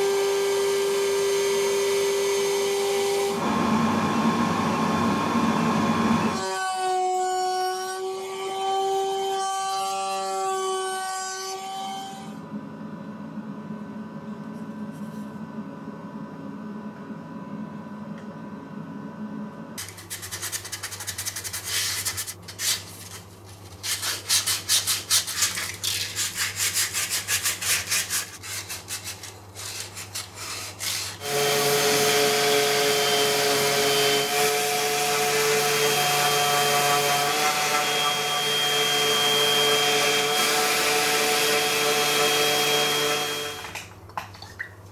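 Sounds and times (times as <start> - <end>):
hand sanding wood: 19.8 - 31.6
orbital sander running: 31.2 - 43.8.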